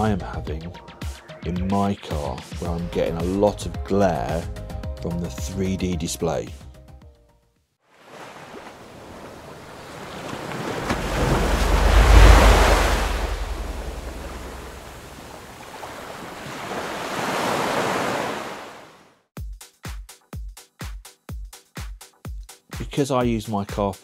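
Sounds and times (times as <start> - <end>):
ocean waves breaking: 7.9 - 19.0.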